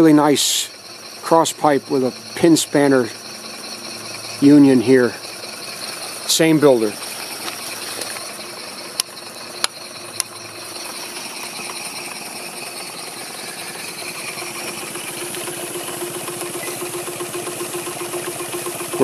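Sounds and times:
model steam engines running: 0:00.0 - 0:19.0
steady hum: 0:00.0 - 0:19.0
sharp clicks: 0:06.8 - 0:12.2.

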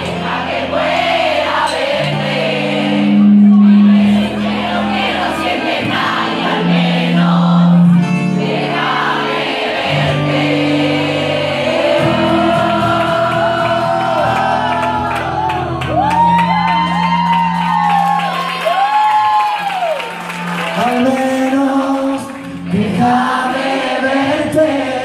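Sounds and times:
audience singing along: 0:00.0 - 0:16.1, 0:20.7 - 0:25.0
acoustic guitar chords: 0:00.0 - 0:17.8, 0:20.0 - 0:25.0
man singing: 0:20.6 - 0:25.0.

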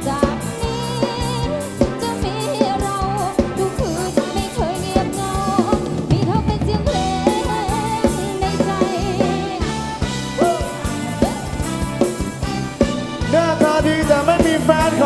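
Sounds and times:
drum kit beat: 0:00.0 - 0:15.0
gliding lead melody: 0:00.0 - 0:15.0
held chords: 0:00.0 - 0:15.0.

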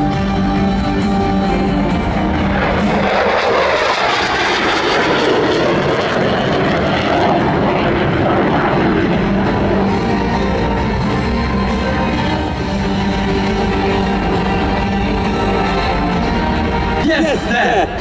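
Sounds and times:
loud jet noise: 0:00.0 - 0:18.0.

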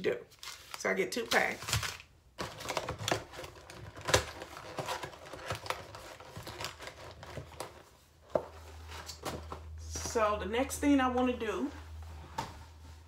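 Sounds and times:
paper packets rustling: 0:00.3 - 0:08.0.

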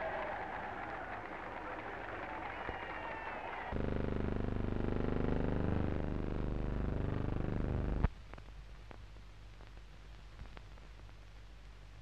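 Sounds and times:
low buzzing hum: 0:03.7 - 0:12.0.

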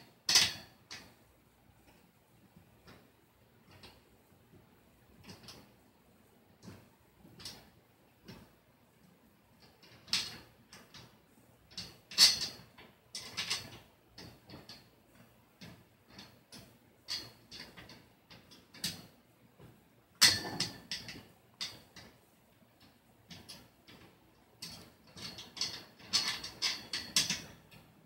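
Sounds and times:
metal shelf clinking on tubes: 0:11.7 - 0:12.6, 0:20.2 - 0:21.8, 0:24.6 - 0:27.9.

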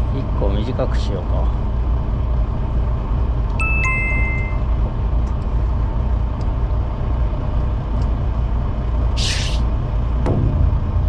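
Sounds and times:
two-note beep: 0:03.6 - 0:04.7.

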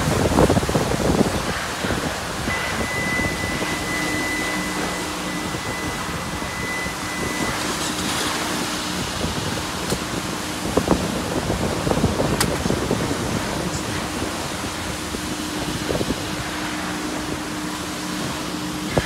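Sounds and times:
low machine hum: 0:00.0 - 0:19.0
rushing car wash ambience: 0:00.0 - 0:19.0
faint high whine: 0:01.8 - 0:09.8.

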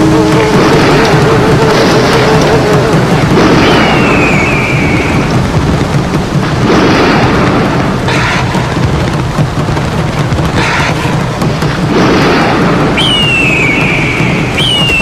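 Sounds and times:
heavy rain: 0:00.0 - 0:15.0
rolling thunder: 0:00.0 - 0:15.0
descending whistle-like tone: 0:03.5 - 0:05.3, 0:12.9 - 0:15.0.

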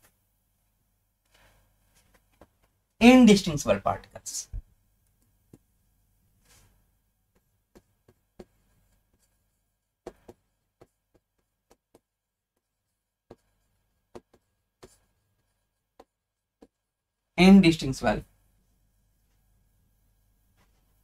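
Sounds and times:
stylus tapping on screen: 0:10.0 - 0:12.1.

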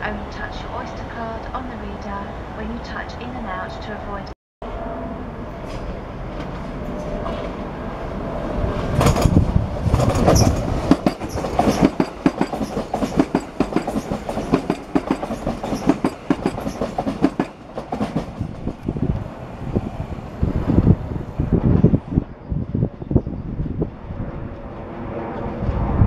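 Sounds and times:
electric train rumbling past: 0:00.0 - 0:26.0
train wheels clacking on track: 0:09.0 - 0:18.9.

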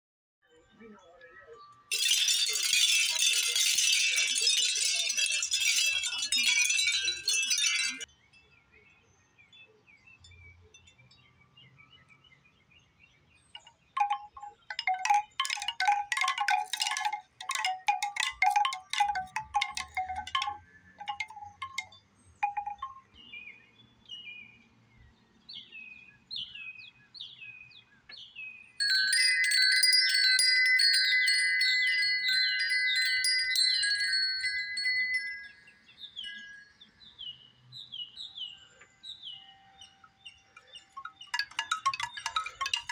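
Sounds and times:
bamboo wind chime clacking: 0:01.9 - 0:08.1, 0:13.5 - 0:23.2, 0:28.8 - 0:37.0, 0:39.7 - 0:42.9
metal tube wind chime ringing: 0:01.9 - 0:08.1, 0:13.6 - 0:23.2, 0:28.8 - 0:37.0, 0:39.5 - 0:42.9
shell wind chime clattering: 0:01.9 - 0:08.1, 0:13.6 - 0:23.1, 0:28.8 - 0:36.8, 0:40.0 - 0:42.9.

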